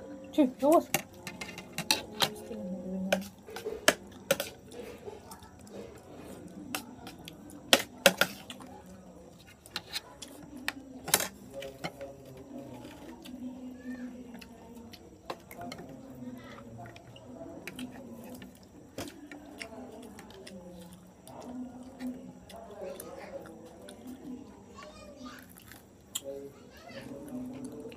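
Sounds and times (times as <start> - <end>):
dishes and tableware clinking: 0.9 - 2.5, 3.1 - 5.2.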